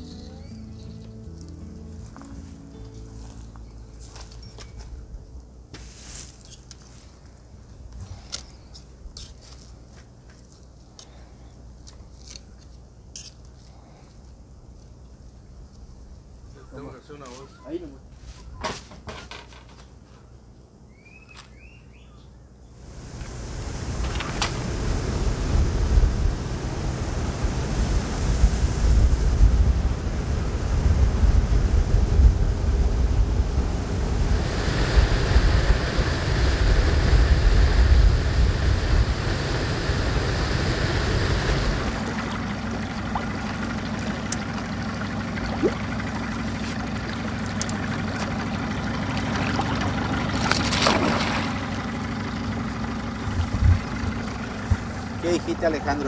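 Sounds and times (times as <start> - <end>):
motorboat engine: 0.0 - 2.7, 22.8 - 56.0
water rushing past: 22.8 - 56.0
wind buffeting microphone: 22.9 - 44.6, 53.2 - 55.2.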